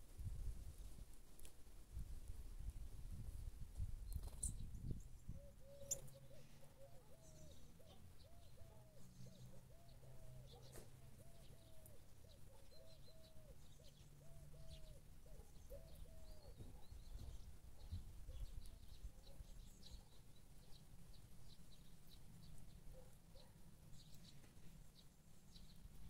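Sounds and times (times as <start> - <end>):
dove cooing: 5.4 - 16.9.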